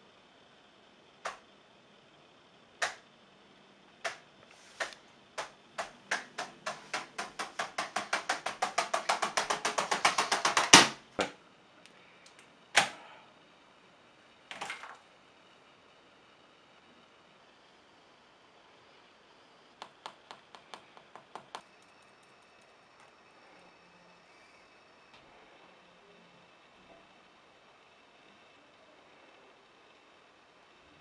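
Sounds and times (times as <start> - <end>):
sharp clicks: 2.8 - 3.0, 4.8 - 10.9.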